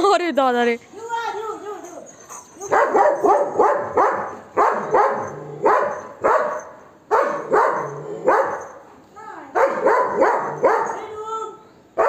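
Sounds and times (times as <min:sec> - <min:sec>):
dog barking aggressively: 0:02.3 - 0:08.8, 0:09.6 - 0:11.0.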